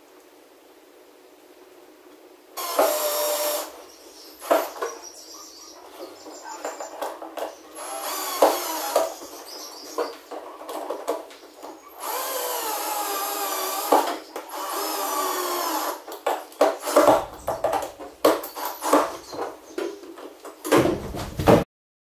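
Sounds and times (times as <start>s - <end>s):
cordless drill motor whine: 2.6s - 3.8s, 7.8s - 9.4s, 12.0s - 16.1s, 18.5s - 19.4s.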